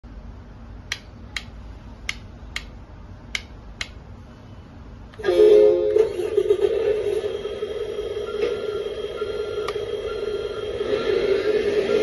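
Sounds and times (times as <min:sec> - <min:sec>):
transmitter switches clicking: 0:00.8 - 0:04.0.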